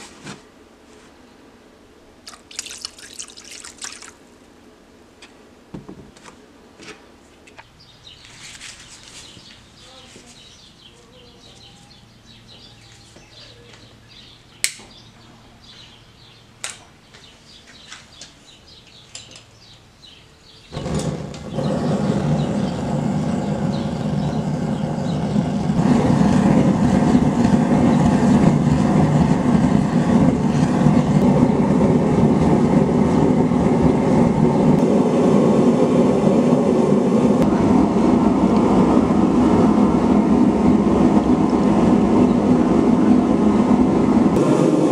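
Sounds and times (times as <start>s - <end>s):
gas forge burner rushing: 20.7s - 44.9s.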